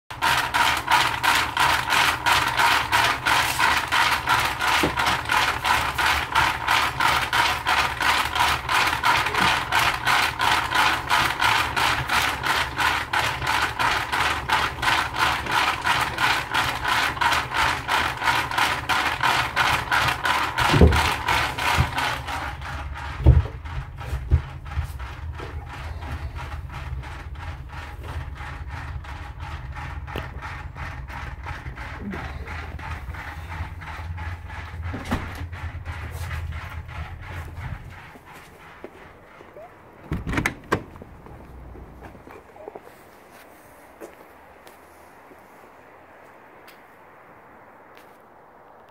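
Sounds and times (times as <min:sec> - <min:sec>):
ball mill clattering: 0:00.1 - 0:42.8
heavy thumps: 0:20.6 - 0:28.4, 0:29.0 - 0:42.2.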